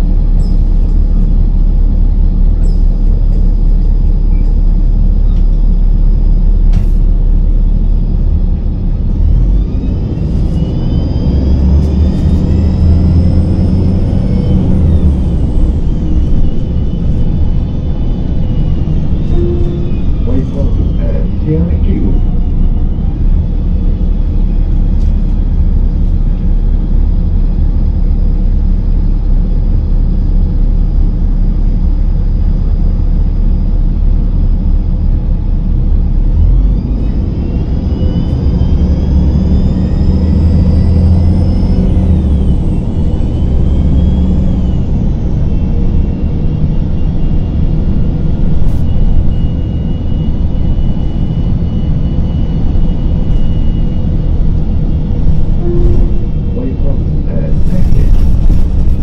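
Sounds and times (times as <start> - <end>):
bus engine rumble: 0.0 - 59.0
high whine: 0.0 - 59.0.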